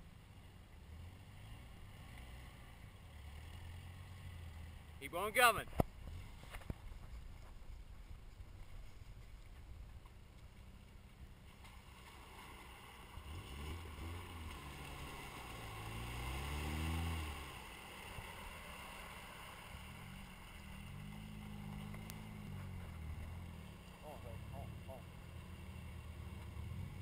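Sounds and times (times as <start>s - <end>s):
truck engine revving hard: 13.2s - 19.8s.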